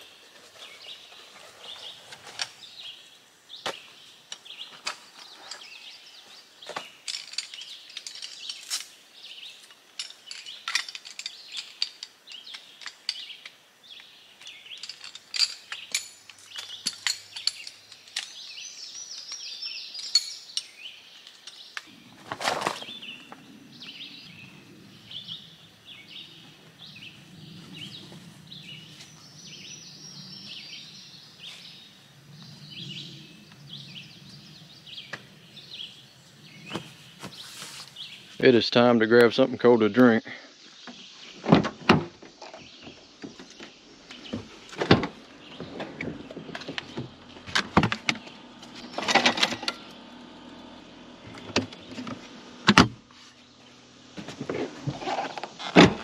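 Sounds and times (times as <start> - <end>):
birds chirping: 0.0 - 56.0
rustling: 0.2 - 2.9, 19.9 - 25.4, 30.8 - 38.4, 43.5 - 56.0
metal poles clicking and clinking: 6.8 - 13.6, 14.4 - 21.8.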